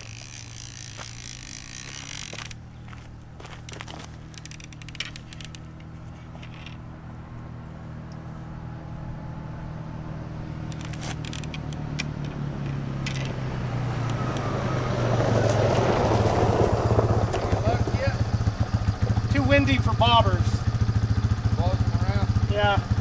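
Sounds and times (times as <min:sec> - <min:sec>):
fishing tackle clicking: 0:00.0 - 0:02.6, 0:03.6 - 0:06.8, 0:10.7 - 0:13.4, 0:14.0 - 0:14.5
low engine drone: 0:00.0 - 0:23.0.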